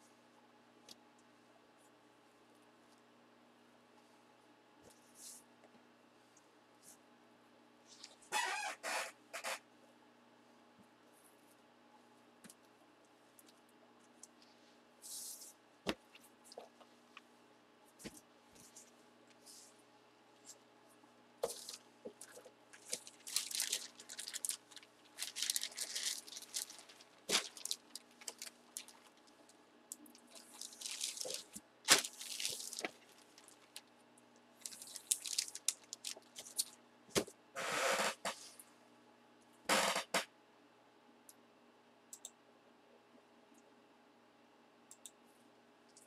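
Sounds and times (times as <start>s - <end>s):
plastic bag crinkling: 21.4s - 33.9s, 34.6s - 36.8s.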